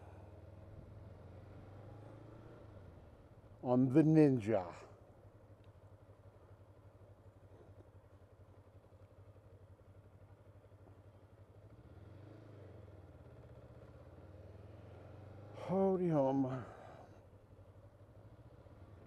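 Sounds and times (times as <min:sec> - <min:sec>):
motorcycle engine running: 0:04.6 - 0:19.0.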